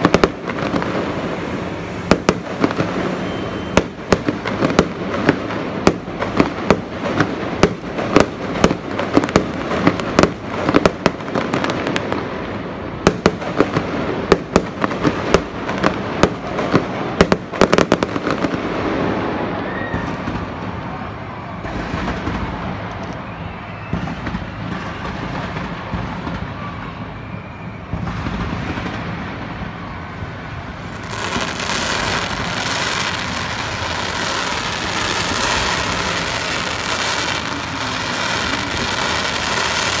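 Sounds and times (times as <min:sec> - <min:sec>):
steady hissing rush: 0:00.0 - 0:03.6
fireworks bangs and crackles: 0:00.0 - 0:40.0.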